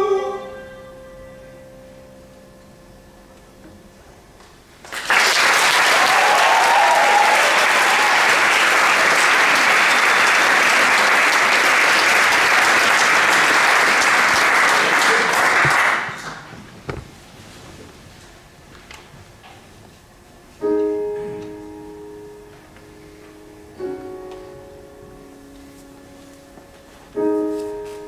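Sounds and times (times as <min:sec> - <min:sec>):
audience applauding: 0:04.8 - 0:16.5.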